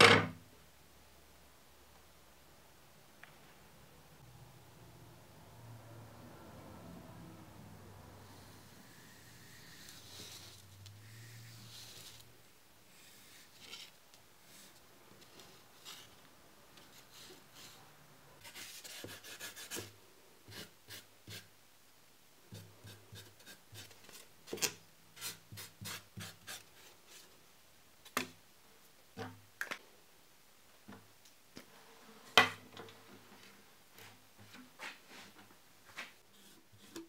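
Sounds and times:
pencil scratching on board: 0:18.4 - 0:19.9
marker on foam board: 0:25.2 - 0:27.2.

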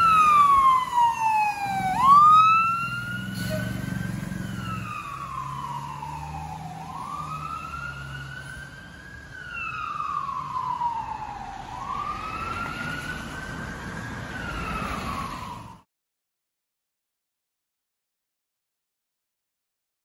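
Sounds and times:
truck engine rumbling: 0:00.0 - 0:09.4
fire engine siren wailing: 0:00.0 - 0:15.9.

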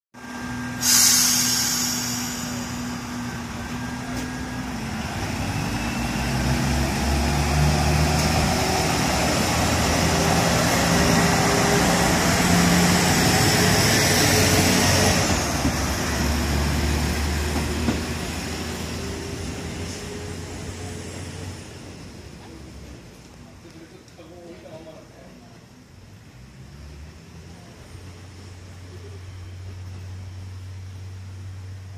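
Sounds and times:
low drone: 0:00.2 - 0:15.6
diesel train engine accelerating: 0:00.2 - 0:31.9
hiss of released air: 0:00.6 - 0:04.4.

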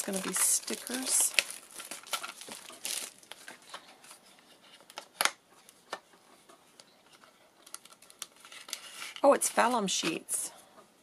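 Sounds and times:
paper rustle: 0:07.1 - 0:10.1.

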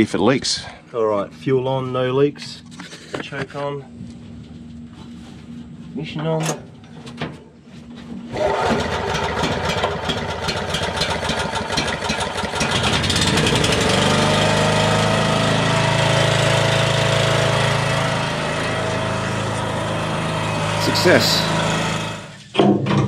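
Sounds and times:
generator engine running: 0:08.3 - 0:22.4.

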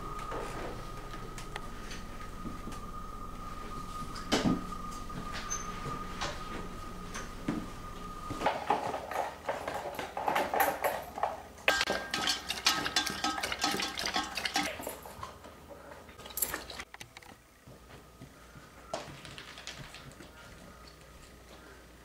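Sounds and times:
dog eating from metal bowl: 0:08.7 - 0:15.4, 0:16.2 - 0:16.9.

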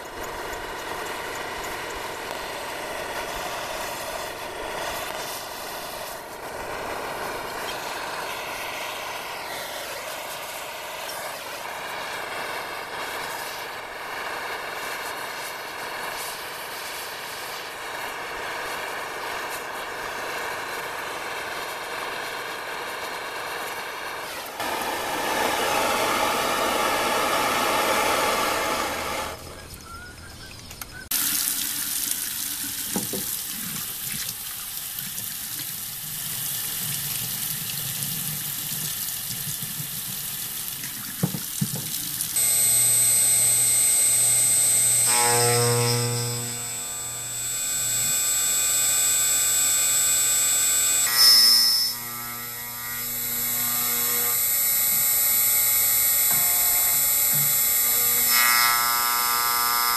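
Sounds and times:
router spindle whining: 0:00.0 - 0:29.7, 0:42.4 - 0:59.9
steady rushing hiss: 0:24.2 - 0:29.4
router squeal: 0:24.2 - 0:29.7, 0:42.4 - 0:59.9
low hum: 0:24.5 - 0:30.0, 0:42.4 - 0:59.8.

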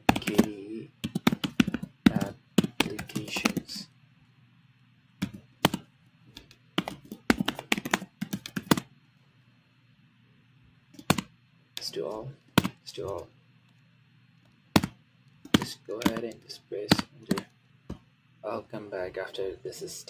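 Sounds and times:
computer keyboard typing: 0:00.0 - 0:03.8, 0:05.2 - 0:08.9, 0:11.0 - 0:11.9, 0:12.6 - 0:13.2, 0:14.7 - 0:17.5.

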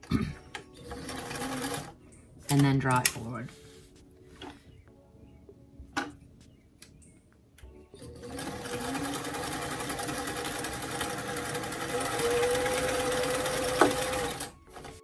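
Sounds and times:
sewing machine running: 0:00.8 - 0:01.9, 0:08.0 - 0:15.0.

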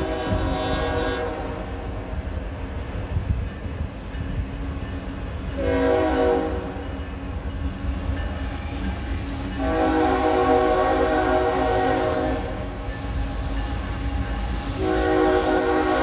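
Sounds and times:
train horn blasts: 0:00.0 - 0:02.1, 0:05.4 - 0:07.1, 0:08.5 - 0:16.0.

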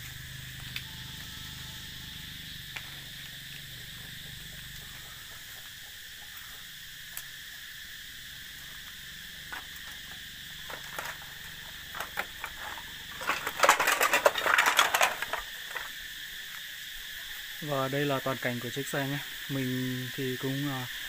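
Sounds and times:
high-pitched insect chorus: 0:00.0 - 0:21.0
rapid clicking and crackling: 0:10.6 - 0:15.9.

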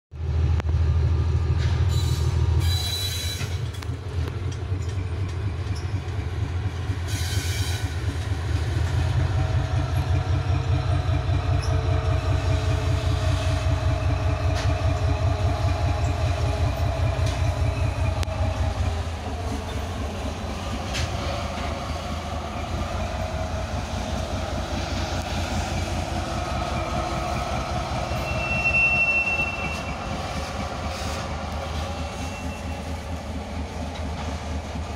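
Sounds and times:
locomotive engine rumbling: 0:00.2 - 0:34.9
wheel squeals: 0:28.0 - 0:31.1, 0:31.7 - 0:33.1.

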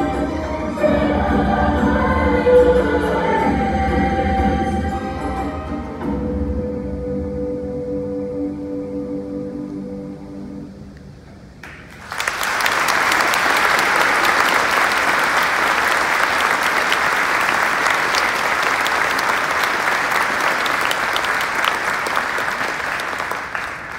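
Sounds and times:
choir holding chord: 0:00.0 - 0:10.7
audience applauding: 0:11.6 - 0:23.9.

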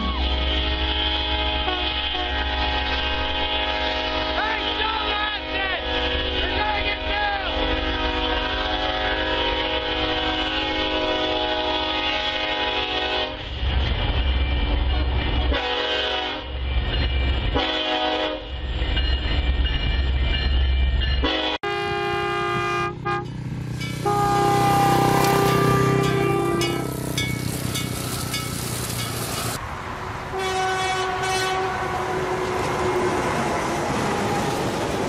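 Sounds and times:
locomotive air horn: 0:00.0 - 0:13.6, 0:14.2 - 0:16.5, 0:17.5 - 0:18.5, 0:21.2 - 0:23.4, 0:24.0 - 0:27.5, 0:30.3 - 0:33.2
train horn: 0:00.0 - 0:13.6, 0:14.2 - 0:16.6, 0:17.5 - 0:18.5, 0:21.2 - 0:23.4, 0:24.0 - 0:27.4, 0:30.3 - 0:33.4
locomotive rumble: 0:00.0 - 0:35.0.

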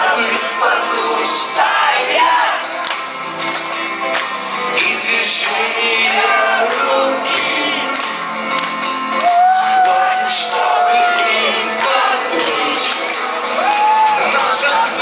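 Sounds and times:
live rock band playing: 0:05.8 - 0:15.0.

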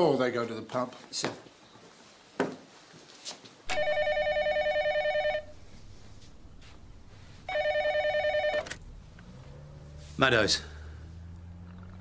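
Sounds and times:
telephone warbling ring: 0:03.7 - 0:05.6, 0:07.4 - 0:08.8.

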